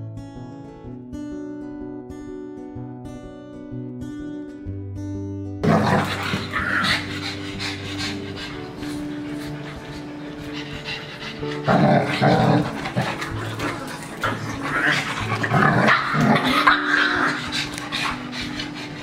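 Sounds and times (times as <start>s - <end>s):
background music: 0.0s - 19.0s
dogs growling: 5.6s - 19.0s.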